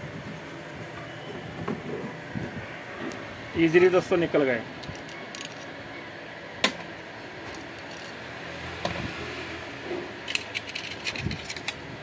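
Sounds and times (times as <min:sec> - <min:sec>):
metal parts clinking: 0:04.8 - 0:05.8, 0:07.4 - 0:08.2, 0:10.2 - 0:11.8.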